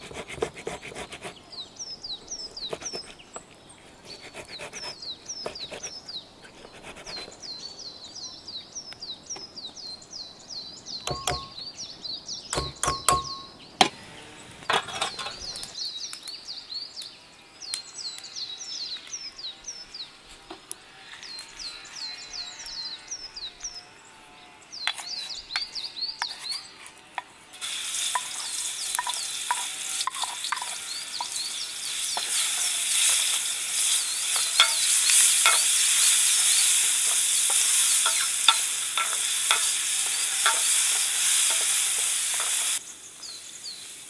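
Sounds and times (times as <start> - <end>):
bird chirping: 1.3 - 20.2, 21.2 - 26.8, 28.0 - 44.0.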